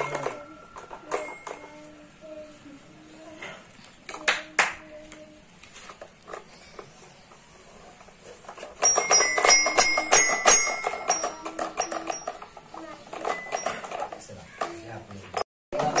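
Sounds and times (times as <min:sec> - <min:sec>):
toy xylophone notes: 0:00.0 - 0:01.9, 0:08.8 - 0:14.1, 0:15.4 - 0:16.0.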